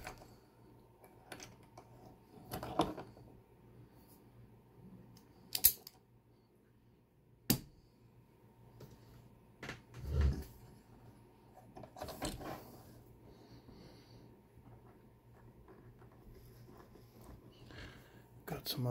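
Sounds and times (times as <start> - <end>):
sharp metal clicks of padlock: 5.5 - 6.0.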